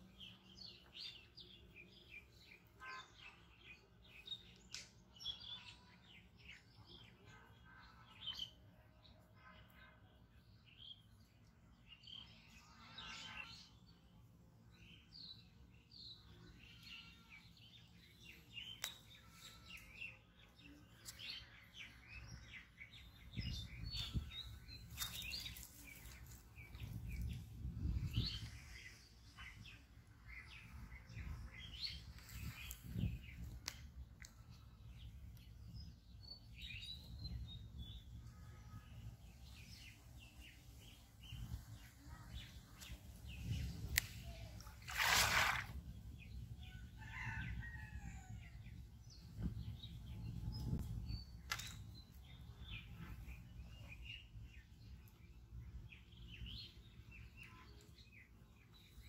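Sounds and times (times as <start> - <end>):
small birds chirping: 14.8 - 59.0.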